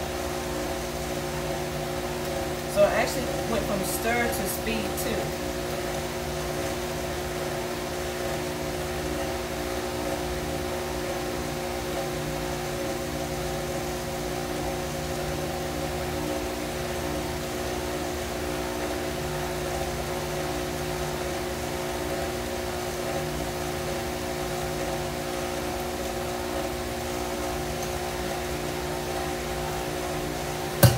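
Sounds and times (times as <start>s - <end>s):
stand mixer motor humming: 23.7s - 30.9s.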